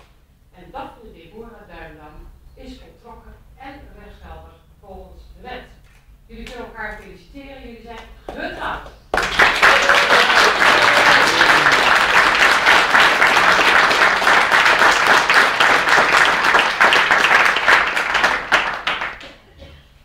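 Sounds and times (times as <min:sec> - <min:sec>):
guests applauding: 0:09.1 - 0:19.6.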